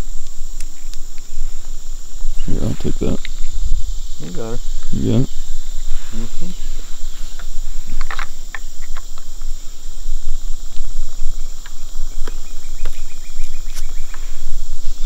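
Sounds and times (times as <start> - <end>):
high-pitched insect chorus: 0.0 - 15.0
crossbow clicks and knocks: 7.3 - 9.5.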